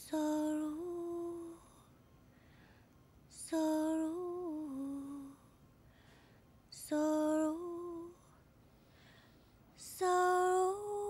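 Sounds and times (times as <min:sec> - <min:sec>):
woman singing softly: 0:00.0 - 0:02.0, 0:03.3 - 0:05.6, 0:06.7 - 0:08.4, 0:09.7 - 0:11.0.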